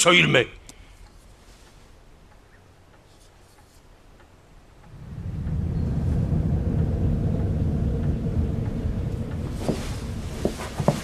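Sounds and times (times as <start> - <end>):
low rumbling drone: 4.7 - 11.0.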